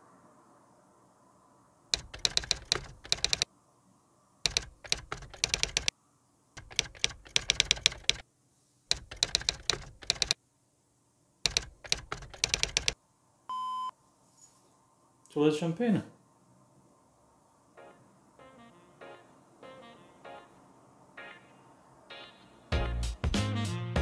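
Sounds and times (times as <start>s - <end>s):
computer keyboard typing: 1.9s - 3.5s, 4.5s - 5.9s, 6.6s - 8.2s, 8.9s - 10.4s, 11.5s - 13.0s.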